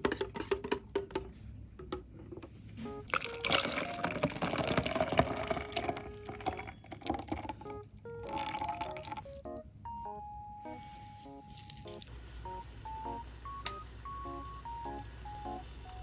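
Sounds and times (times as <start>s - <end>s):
batter pouring and splashing: 3.1s - 9.3s, 10.9s - 13.4s.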